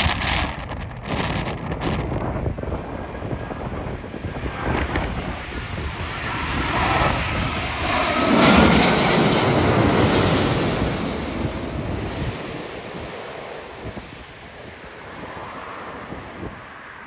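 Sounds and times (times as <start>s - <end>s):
jet airliner passing overhead: 0.0s - 17.0s
wind buffeting microphone: 0.0s - 17.0s.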